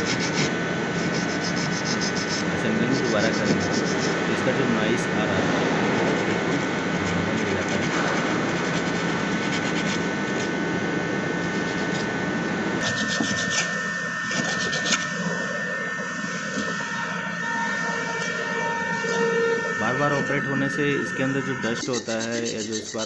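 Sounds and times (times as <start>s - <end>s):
emery paper scrubbing metal: 0.0s - 4.4s, 5.9s - 10.5s, 21.2s - 23.0s.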